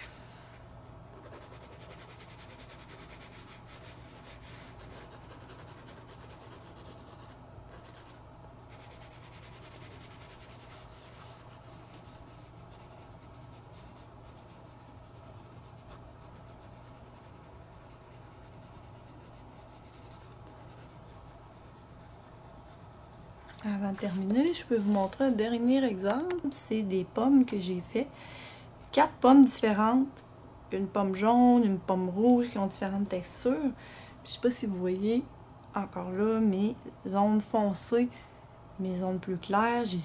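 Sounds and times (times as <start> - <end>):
pencil shading on paper: 1.2 - 23.2.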